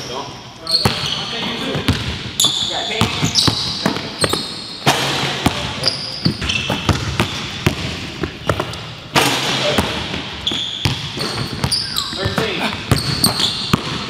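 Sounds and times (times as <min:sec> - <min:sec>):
sneakers squeaking: 0:00.0 - 0:14.0
basketball bouncing on wooden floor: 0:01.7 - 0:02.2, 0:03.0 - 0:04.5, 0:05.2 - 0:08.8, 0:09.8 - 0:14.0.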